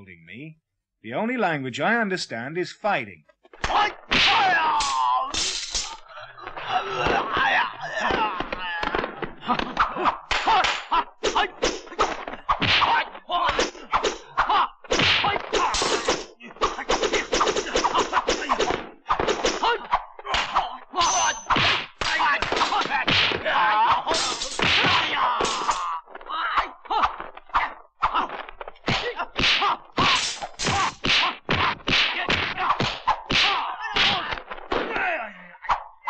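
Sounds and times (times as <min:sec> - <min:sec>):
fighters yelling and grunting: 0:03.5 - 0:36.0
punch and kick thwacks: 0:03.6 - 0:05.2, 0:06.9 - 0:14.2, 0:14.8 - 0:20.7, 0:21.5 - 0:25.8, 0:28.2 - 0:35.1.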